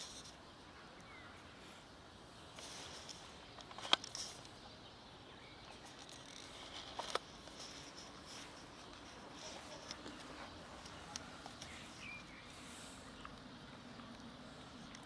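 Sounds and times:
cats crunching dry food: 0:05.9 - 0:15.0.

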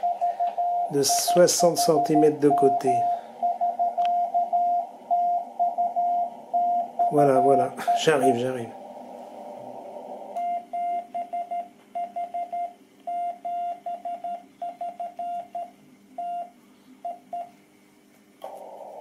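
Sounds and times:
morse code tone: 0:00.0 - 0:09.0, 0:10.3 - 0:16.5
radio band hiss: 0:07.0 - 0:10.4.

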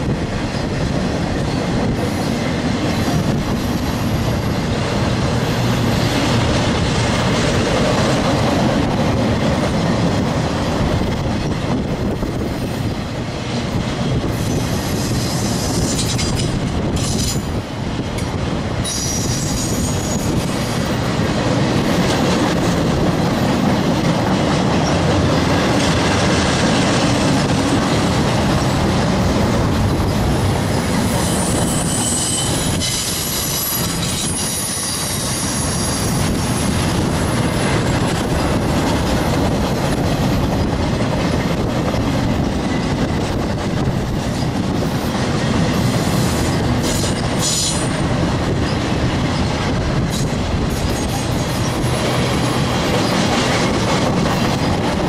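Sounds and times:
train wheels rumbling on rails: 0:00.0 - 0:55.0
high-pitched wheel squeal: 0:18.8 - 0:20.4, 0:31.1 - 0:36.2.

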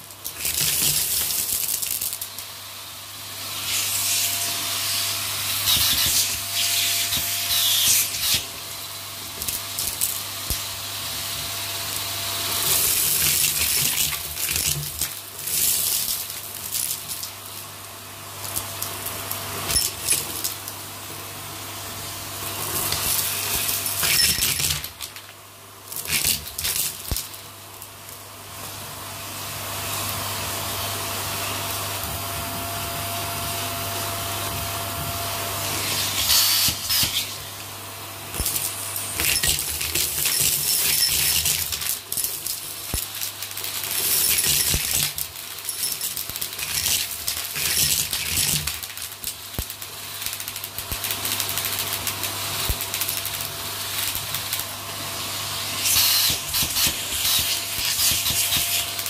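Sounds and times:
debris rattling in hose: 0:00.0 - 0:02.6, 0:09.3 - 0:17.8, 0:18.4 - 0:20.8, 0:22.5 - 0:28.2, 0:38.3 - 0:59.0
vacuum cleaner running: 0:00.0 - 0:50.2, 0:51.0 - 0:59.0.

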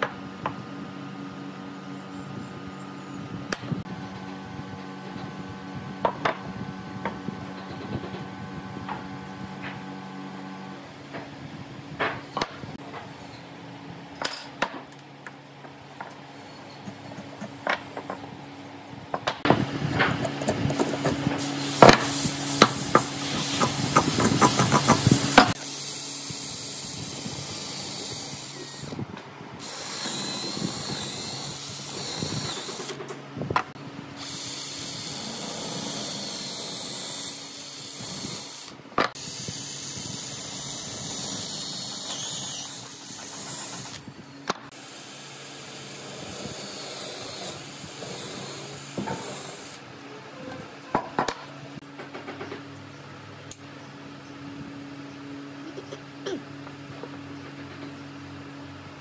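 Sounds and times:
cordless drill boring into wood: 0:23.6 - 0:29.0, 0:29.6 - 0:33.0, 0:34.2 - 0:44.1, 0:44.8 - 0:49.8.

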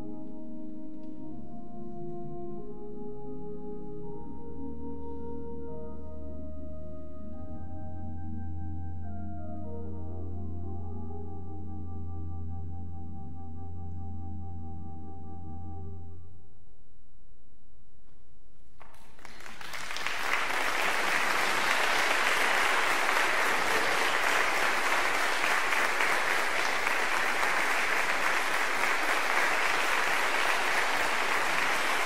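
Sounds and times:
audience applauding: 0:18.8 - 0:32.0.

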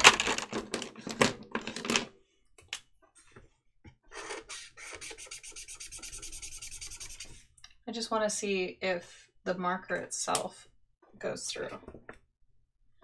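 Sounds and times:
marker nib rubbing on paper: 0:04.2 - 0:07.4.

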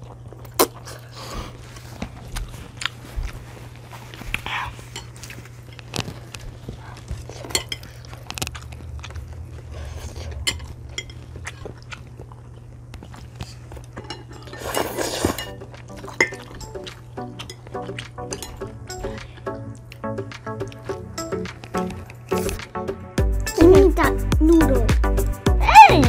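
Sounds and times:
chewing and biting: 0:00.0 - 0:22.6
low steady hum: 0:00.0 - 0:24.9
utensils clinking on ceramic bowls: 0:07.4 - 0:07.9, 0:14.0 - 0:18.7.

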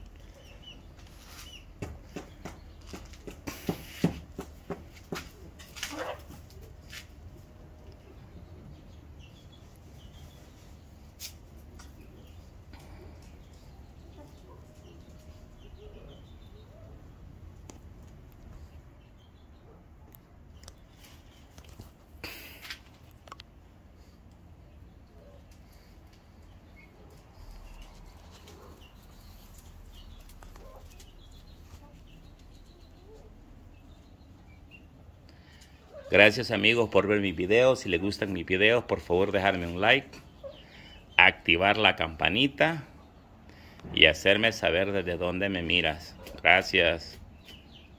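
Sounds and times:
chickens clucking: 0:00.0 - 0:19.8, 0:20.4 - 0:42.0, 0:46.1 - 0:47.9
chickens clucking softly: 0:04.7 - 0:06.8, 0:24.8 - 0:35.0.

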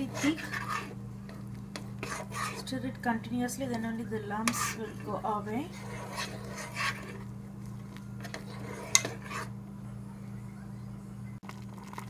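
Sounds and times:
spoon stirring in saucepan: 0:00.0 - 0:09.8
steady low hum: 0:00.0 - 0:12.0.

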